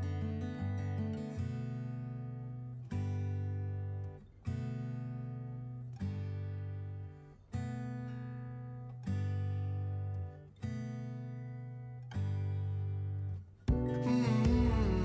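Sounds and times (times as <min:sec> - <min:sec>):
strummed guitar chords: 0:07.6 - 0:15.0.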